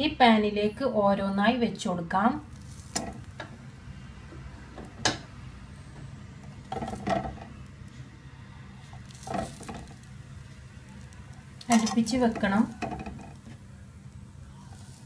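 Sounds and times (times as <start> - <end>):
faint sizzle: 0.0 - 15.0
bread tapping into frying pan: 12.4 - 13.6.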